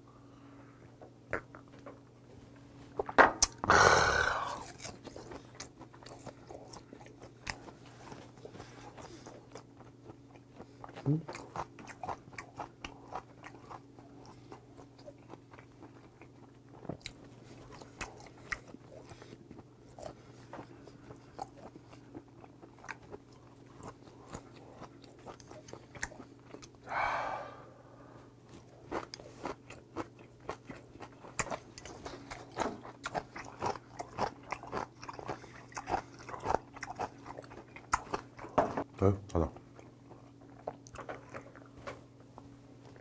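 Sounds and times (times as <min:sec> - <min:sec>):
chewing and biting raw fish: 0:04.4 - 0:26.8, 0:28.7 - 0:38.6.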